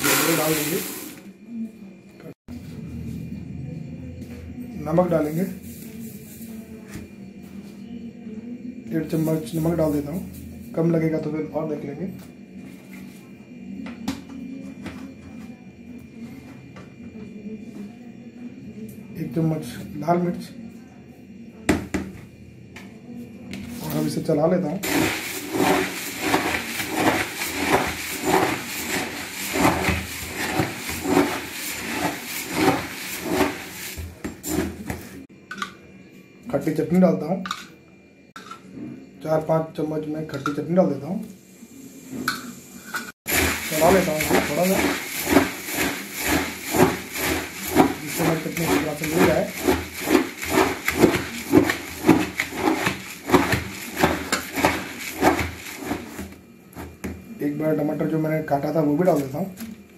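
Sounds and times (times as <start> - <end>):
spoon stirring puffed rice: 0.0 - 1.2, 24.8 - 35.2, 43.3 - 57.1.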